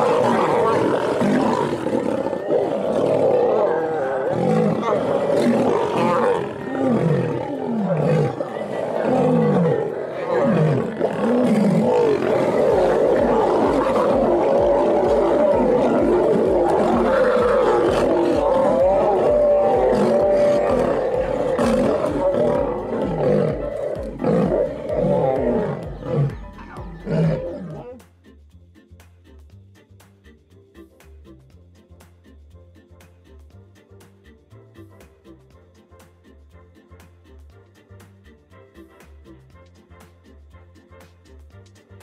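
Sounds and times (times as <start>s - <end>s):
lions roaring: 0.0s - 26.4s, 27.0s - 27.9s.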